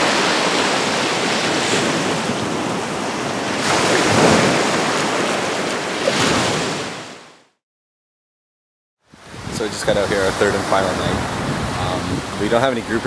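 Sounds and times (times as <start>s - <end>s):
waves washing on sandy beach: 0.0s - 7.3s, 9.1s - 13.0s
wind buffeting microphone: 9.1s - 13.0s.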